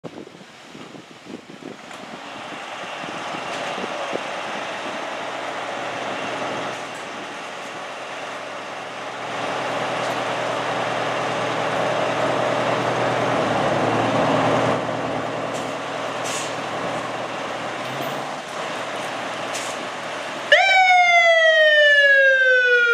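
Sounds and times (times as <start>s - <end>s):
diesel engines running: 1.7s - 22.9s
short air hisses: 16.2s - 16.6s.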